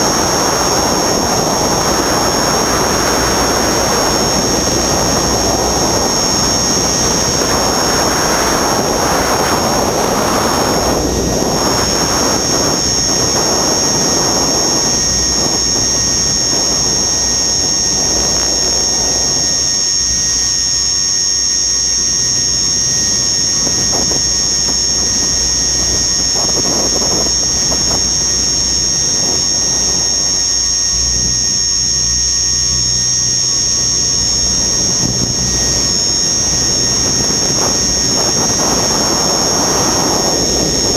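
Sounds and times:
helicopter drive whine: 0.0s - 40.9s
wind noise on microphone: 0.0s - 40.9s.

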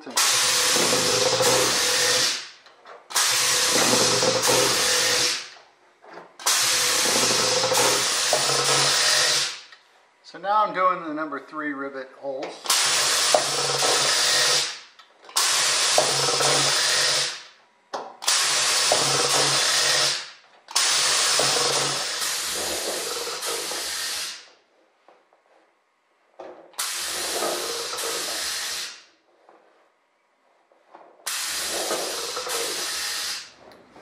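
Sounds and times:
pneumatic dimpler air hiss: 26.8s - 29.0s, 31.3s - 33.6s.

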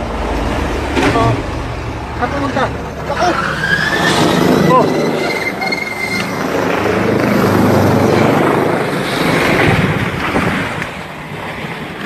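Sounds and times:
helicopter engines and rotor: 0.0s - 12.0s.

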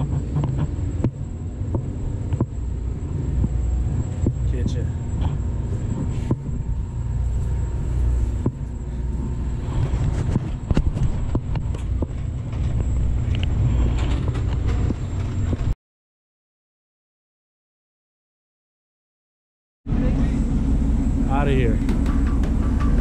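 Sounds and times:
boat engine idling: 0.0s - 15.5s, 19.9s - 23.0s.

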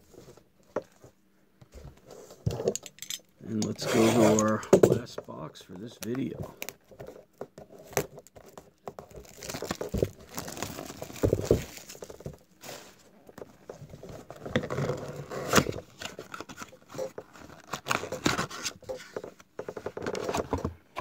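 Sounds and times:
packaging crinkling and tearing: 7.8s - 12.8s.

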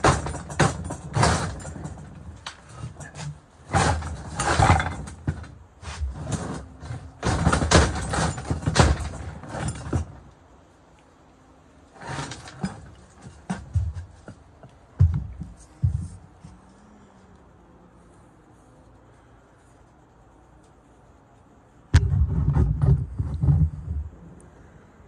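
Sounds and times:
metal clatter: 0.0s - 10.3s, 12.0s - 14.4s
metal knocking and scraping: 0.0s - 10.4s, 11.9s - 16.6s, 21.9s - 24.3s.

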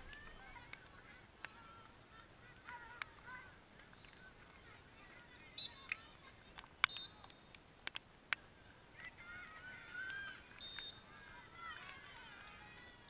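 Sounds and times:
whistle blasts: 5.5s - 5.9s, 6.8s - 7.6s, 10.6s - 11.2s
players shouting: 9.0s - 13.0s.

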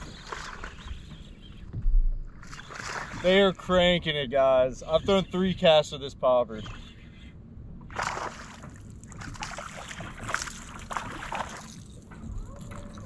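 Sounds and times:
fish splashing at the surface: 7.9s - 11.9s.

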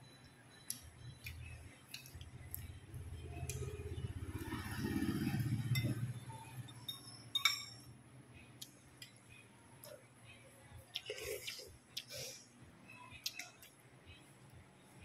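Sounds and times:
cutlery clinking on ceramic bowls: 6.8s - 7.9s.

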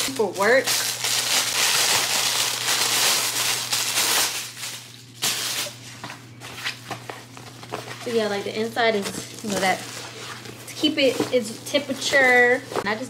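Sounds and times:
plastic bag crinkling: 0.0s - 5.8s, 7.2s - 12.9s
sharp plastic crackle: 0.0s - 5.8s.

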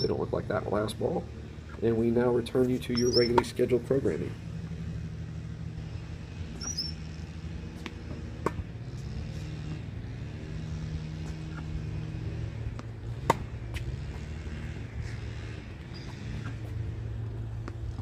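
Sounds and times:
low engine-like hum: 0.0s - 18.0s
bird chirping: 2.9s - 3.4s, 6.6s - 7.0s
racket striking tennis ball: 7.8s - 8.7s, 12.7s - 14.0s.

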